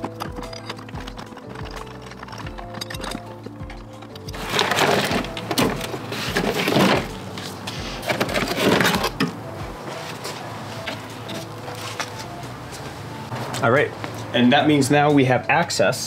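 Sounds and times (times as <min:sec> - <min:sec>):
plastic and metal scraping and knocking: 0:00.0 - 0:09.4.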